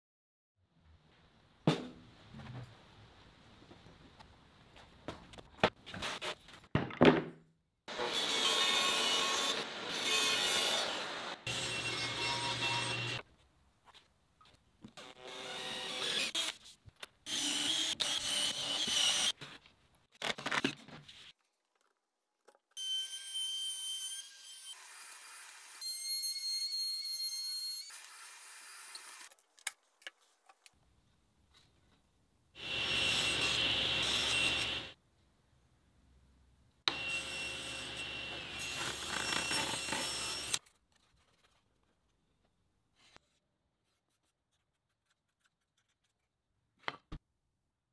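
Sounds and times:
table saw whining: 0:07.9 - 0:13.2, 0:32.6 - 0:35.0, 0:36.9 - 0:40.6.

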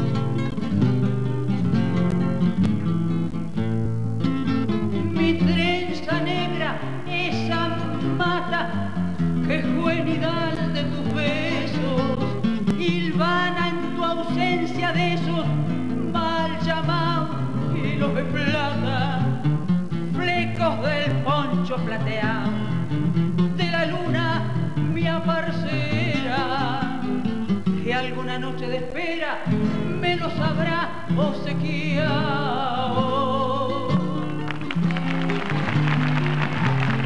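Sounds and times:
acoustic guitars playing: 0:00.0 - 0:37.0
woman singing with vibrato: 0:05.0 - 0:19.5, 0:20.1 - 0:22.8, 0:23.6 - 0:34.9.

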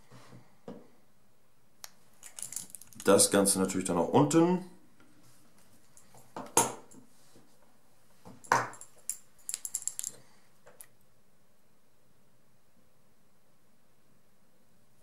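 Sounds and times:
tools clicking and knocking: 0:08.4 - 0:10.2.

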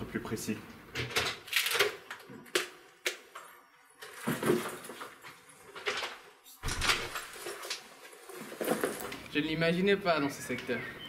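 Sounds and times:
rustling: 0:04.0 - 0:09.4
door opening: 0:06.6 - 0:07.5.

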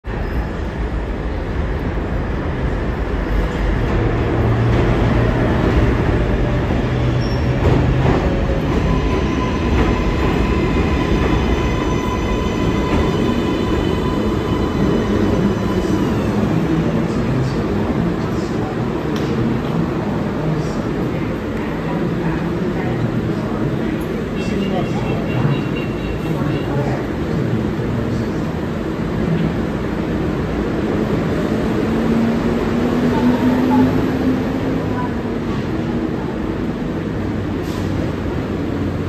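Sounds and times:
train wheels rumbling on rails: 0:00.1 - 0:39.0
high-pitched train whine: 0:08.4 - 0:16.9.

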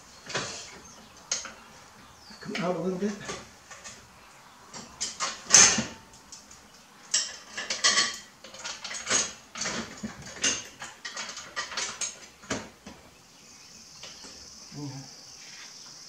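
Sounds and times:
steel parts clinking and rattling: 0:04.7 - 0:12.6.

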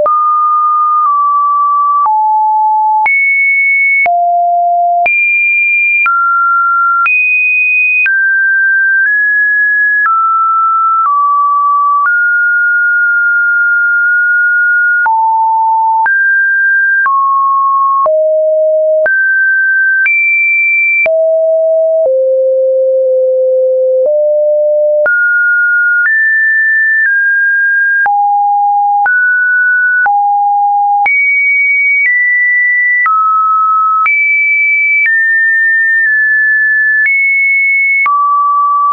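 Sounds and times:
electronic sine tones: 0:00.0 - 0:03.1, 0:14.7 - 0:29.2.

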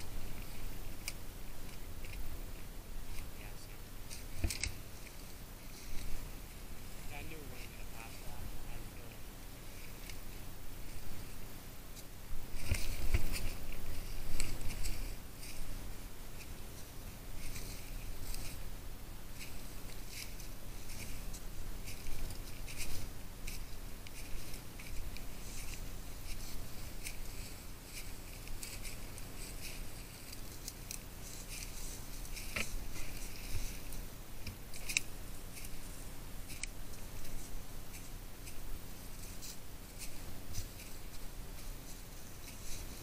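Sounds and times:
twigs snapping: 0:00.4 - 0:02.2, 0:04.1 - 0:05.2, 0:11.9 - 0:15.7, 0:19.4 - 0:43.0
footsteps crunching dry leaves: 0:12.4 - 0:43.0.

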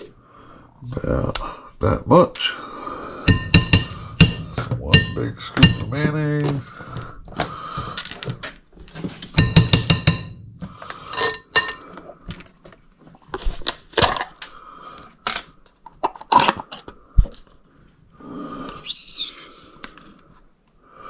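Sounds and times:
metal spoon clinking on ceramic bowl: 0:03.3 - 0:06.0, 0:09.4 - 0:10.4, 0:11.1 - 0:11.9.

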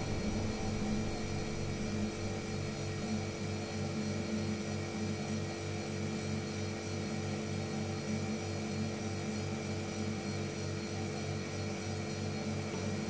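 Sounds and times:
low throbbing hum: 0:00.0 - 0:04.0.

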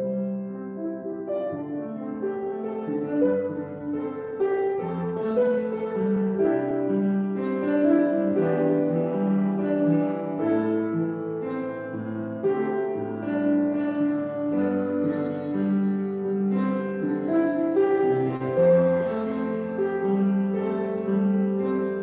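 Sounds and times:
slow keyboard music: 0:00.0 - 0:22.0.

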